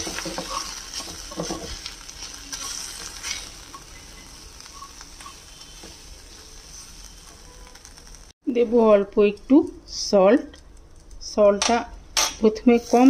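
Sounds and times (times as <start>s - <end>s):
spatula scraping in pan: 0.0s - 8.3s, 12.7s - 13.0s
onions sizzling in oil: 0.0s - 8.4s, 12.6s - 13.0s.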